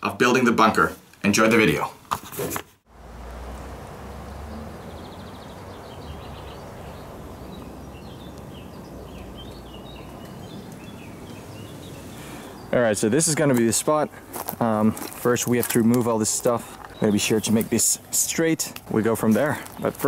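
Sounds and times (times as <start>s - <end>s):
small birds chirping: 4.0s - 20.0s.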